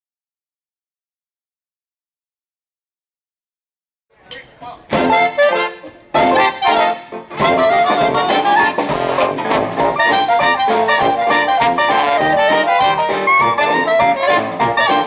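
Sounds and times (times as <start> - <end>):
jazz band playing: 4.5 - 15.0.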